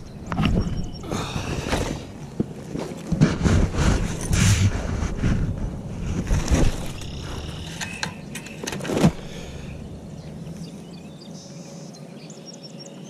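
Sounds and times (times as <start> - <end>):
fabric rubbing on microphone: 3.1 - 7.1.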